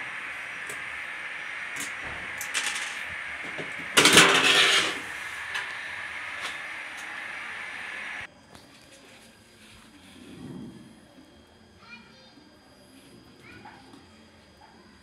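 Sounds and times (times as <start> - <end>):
steady hiss: 0.0 - 8.3.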